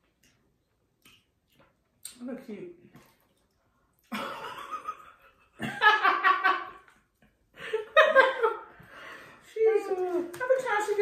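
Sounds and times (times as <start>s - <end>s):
women laughing: 4.1s - 6.8s, 7.6s - 8.7s.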